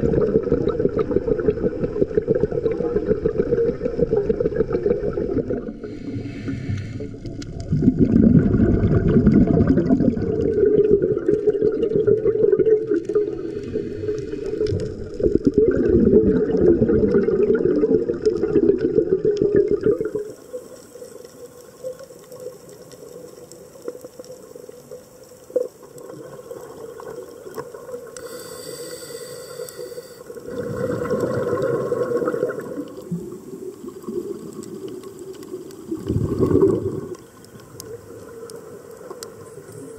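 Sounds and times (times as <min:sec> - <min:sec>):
underwater bubbles rushing: 0:00.0 - 0:28.2, 0:30.2 - 0:39.9
underwater hiss: 0:05.3 - 0:08.8, 0:12.8 - 0:15.4, 0:19.9 - 0:24.5, 0:27.8 - 0:39.9.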